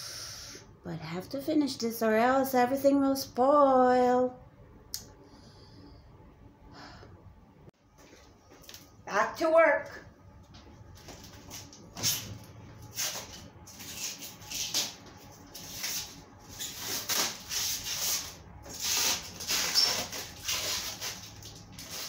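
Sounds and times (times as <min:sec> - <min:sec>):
plastic film peeling and crinkling: 0:11.1 - 0:22.0.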